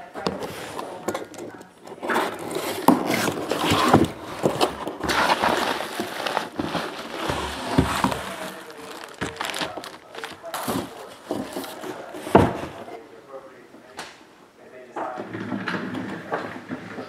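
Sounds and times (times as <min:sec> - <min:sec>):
packing rustling and crinkling: 0:00.2 - 0:12.8
cardboard knocks: 0:02.9 - 0:12.8.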